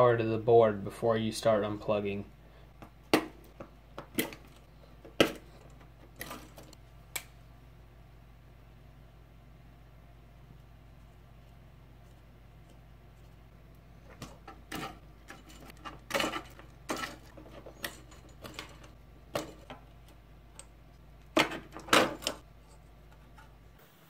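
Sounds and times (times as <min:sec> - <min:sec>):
wire rustling: 0:10.4 - 0:23.7.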